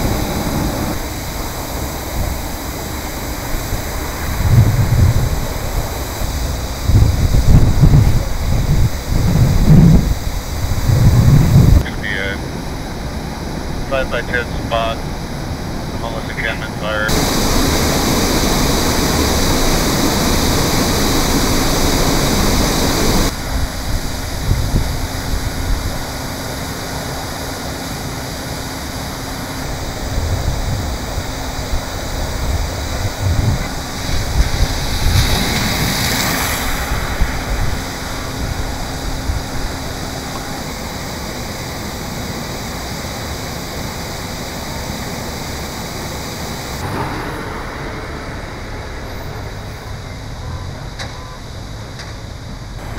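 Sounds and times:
low rumbles: 0:00.0 - 0:26.2, 0:46.8 - 0:52.9
water gushing from fire hydrant: 0:00.0 - 0:47.6.

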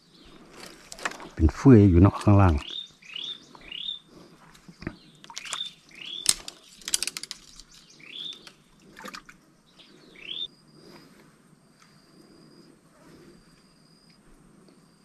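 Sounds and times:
bird whistled call: 0:08.0 - 0:08.4, 0:09.8 - 0:10.5.

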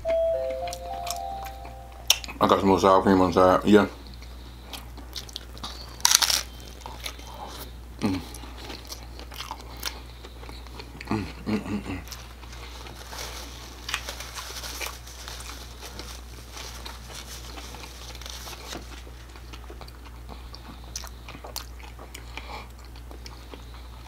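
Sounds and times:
chewing with crackles: 0:04.0 - 0:24.0
crunchy bite into taco: 0:04.7 - 0:13.0.

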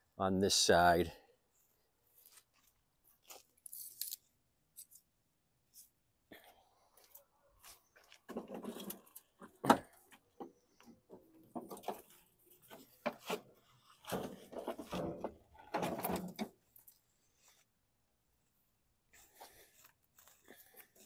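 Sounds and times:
scuffing and shuffling: 0:01.5 - 0:03.7, 0:07.0 - 0:08.4.

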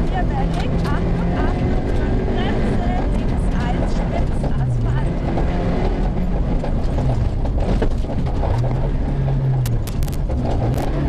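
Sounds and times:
rally car engine running hard: 0:00.0 - 0:11.0
tyre and gravel noise: 0:00.0 - 0:11.0
sharp clicks: 0:09.5 - 0:11.0.

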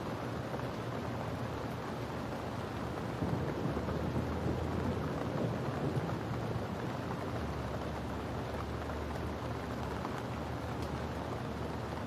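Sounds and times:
heavy rain: 0:00.0 - 0:12.0
thunder rumbling: 0:02.9 - 0:07.3.

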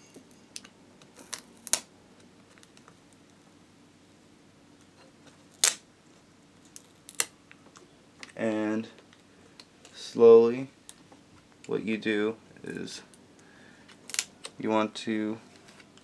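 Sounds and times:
adhesive tape clicks and crackle: 0:00.6 - 0:03.3, 0:04.8 - 0:05.8, 0:06.6 - 0:08.4, 0:13.9 - 0:14.6.

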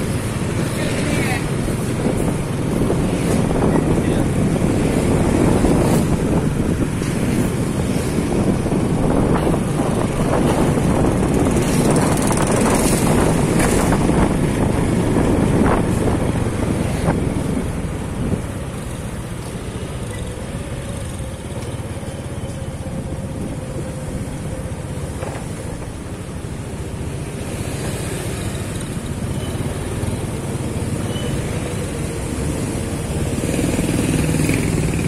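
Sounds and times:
wind rushing over microphone: 0:00.0 - 0:21.5
motorcycle engine hum: 0:00.0 - 0:35.0
road noise: 0:00.0 - 0:35.0.

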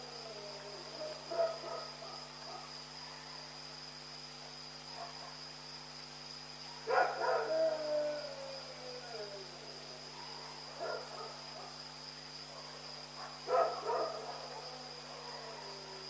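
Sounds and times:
dog barking: 0:01.3 - 0:03.4, 0:04.9 - 0:05.4, 0:06.8 - 0:07.5, 0:10.1 - 0:11.8, 0:12.5 - 0:15.8
dog long falling howl: 0:07.0 - 0:11.1, 0:13.8 - 0:16.0.

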